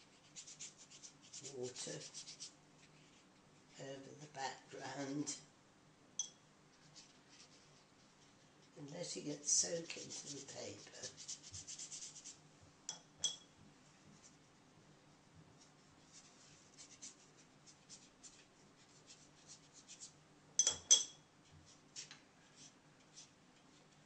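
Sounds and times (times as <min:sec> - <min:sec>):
wet brush stroking paper: 0:00.0 - 0:03.3, 0:06.7 - 0:12.4, 0:15.6 - 0:20.2, 0:21.6 - 0:24.0
light clinks: 0:20.6 - 0:21.2.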